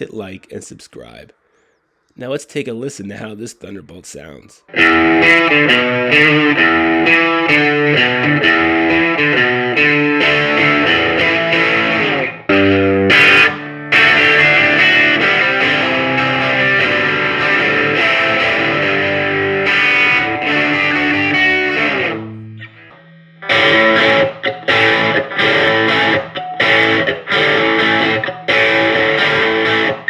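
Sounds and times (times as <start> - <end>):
electric guitar through valve amp: 4.7 - 30.0.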